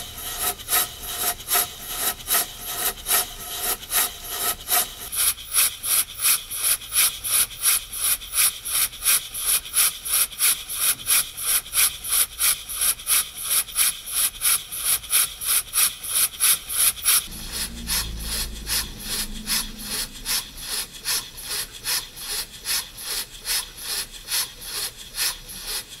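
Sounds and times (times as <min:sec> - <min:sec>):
model steam engine exhaust puffs: 0:00.0 - 0:26.0
low rumble: 0:17.2 - 0:22.6.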